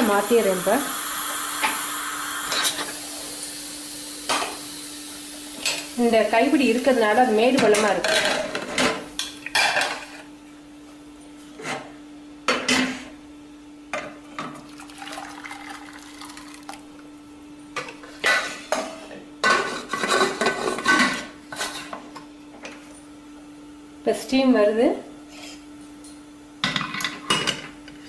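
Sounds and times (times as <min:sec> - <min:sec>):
water pouring: 0:14.7 - 0:17.0.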